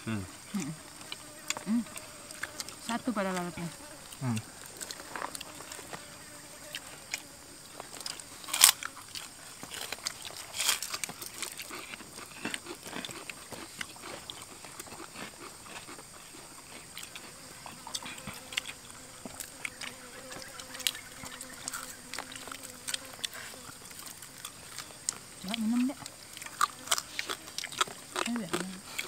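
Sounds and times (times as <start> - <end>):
people crunching crispy food: 6.7 - 20.0, 21.6 - 29.0.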